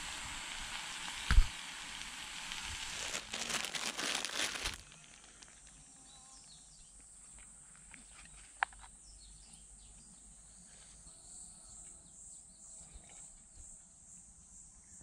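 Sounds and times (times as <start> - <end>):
insects droning: 0.0 - 15.0
faint bird chirps: 3.6 - 13.8.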